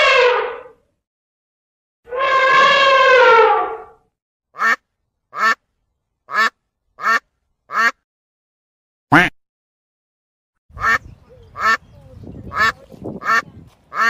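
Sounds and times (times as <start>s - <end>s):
elephant trumpeting: 0.0s - 0.8s, 2.1s - 4.0s
duck quacking: 4.6s - 5.6s, 6.3s - 8.0s, 9.1s - 9.3s, 10.8s - 11.9s, 12.5s - 14.0s.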